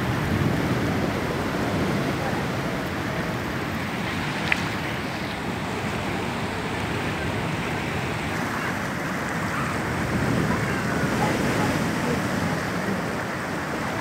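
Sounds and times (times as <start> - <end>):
seawater rushing over ground: 0.0 - 14.0.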